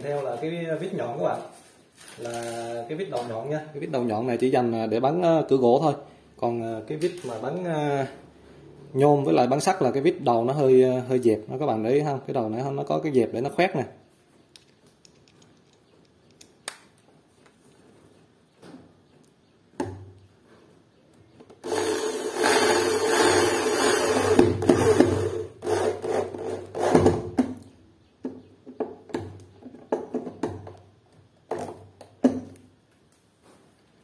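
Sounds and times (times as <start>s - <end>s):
electric drill driving screw: 21.6s - 27.2s.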